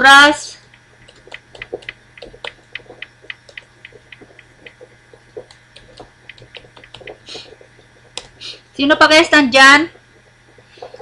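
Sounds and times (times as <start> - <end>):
computer keyboard typing: 0.7 - 4.8, 5.5 - 7.2.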